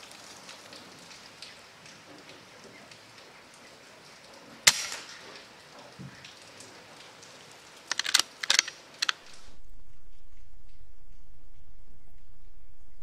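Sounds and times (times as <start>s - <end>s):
air rifle shot: 4.7s - 5.1s
sharp clicks: 7.9s - 9.4s
steady low hum: 9.2s - 13.0s.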